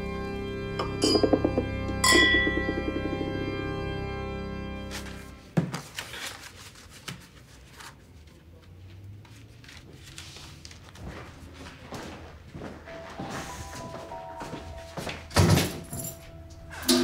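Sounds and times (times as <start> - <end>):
sharp knock: 0.8 - 3.6.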